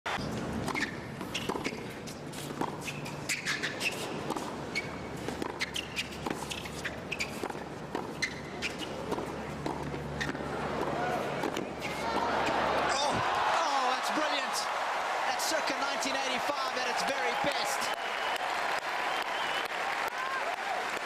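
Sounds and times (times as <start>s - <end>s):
shoes squeaking on court: 0.2s - 12.7s
racquets striking tennis ball: 0.6s - 14.5s.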